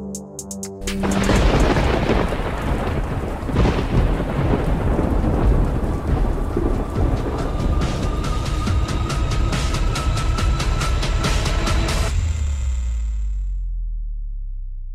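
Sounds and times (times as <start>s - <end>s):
heavy rain: 0.9s - 12.1s
rolling thunder: 1.0s - 10.2s.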